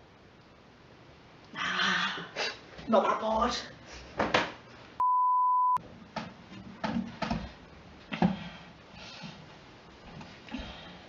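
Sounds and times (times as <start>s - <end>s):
room noise: 0.0s - 11.0s
high censor bleep: 5.0s - 5.8s.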